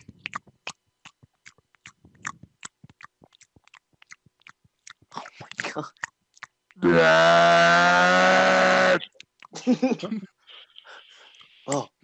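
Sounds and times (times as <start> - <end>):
soft low mumble: 0.0 - 5.7
lip smacks and tongue clicks: 0.0 - 6.8, 9.0 - 9.7.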